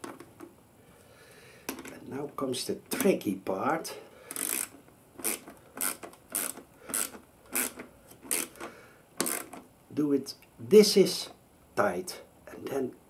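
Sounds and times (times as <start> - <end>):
ratchet clicking: 4.3 - 9.6.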